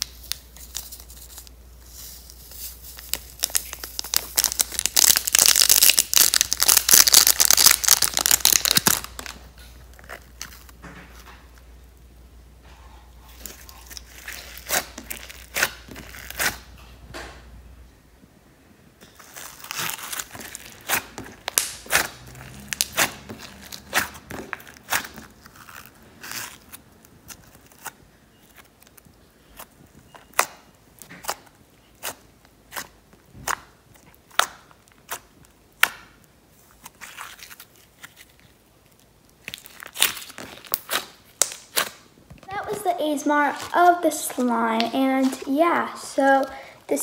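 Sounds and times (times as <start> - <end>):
slime squishing and popping: 3.0 - 11.3, 19.1 - 42.8.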